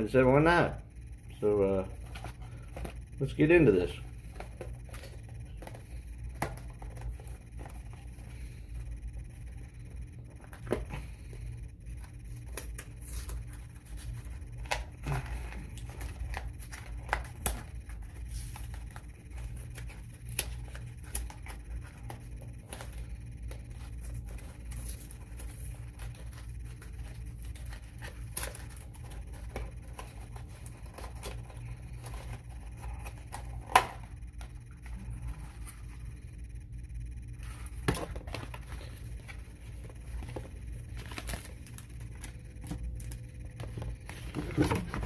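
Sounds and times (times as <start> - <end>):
low hum: 0.0 - 45.0
cardboard package handling: 37.4 - 45.0.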